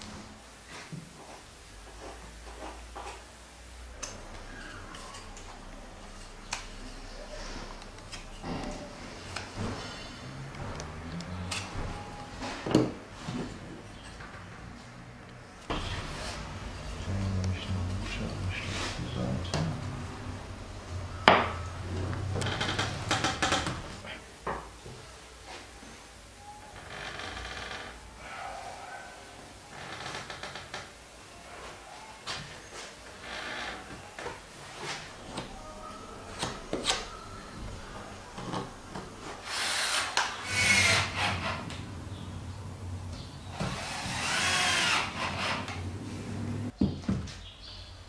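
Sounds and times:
wooden battens knocking and sliding: 0:22.2 - 0:24.0
cordless drill driving screw: 0:39.5 - 0:41.4, 0:43.6 - 0:45.5.

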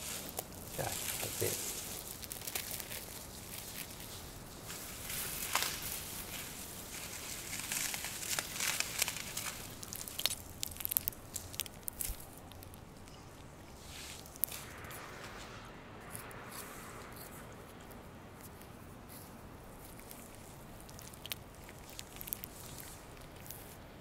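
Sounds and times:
plastic wrapping crinkling and tearing: 0:00.0 - 0:13.2, 0:19.9 - 0:24.0.

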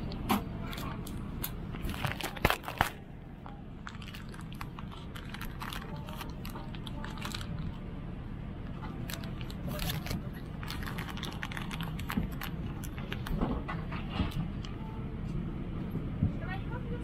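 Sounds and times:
plastic wrapping crinkling: 0:00.0 - 0:03.0, 0:03.8 - 0:07.8, 0:08.7 - 0:13.4
airliner cabin hum: 0:00.0 - 0:17.0.

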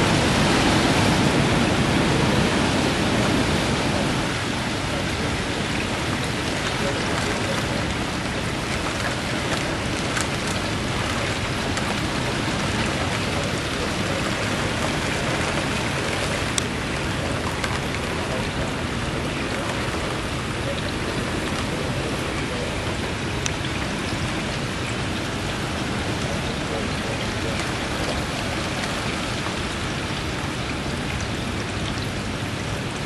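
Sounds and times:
rain hissing: 0:00.0 - 0:33.0
wind noise: 0:00.0 - 0:33.0.

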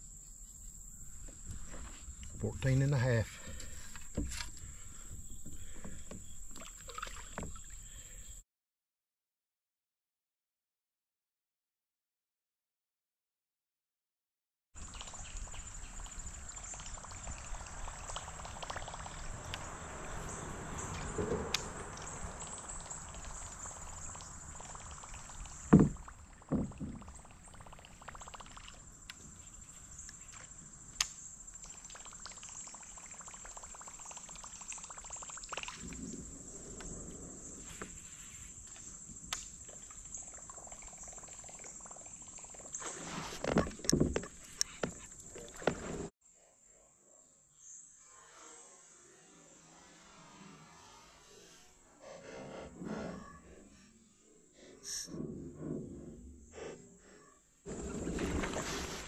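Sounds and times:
high insect drone: 0:14.8 - 0:45.8, 0:47.5 - 0:55.0
sharp knocks: 0:25.7 - 0:27.0.

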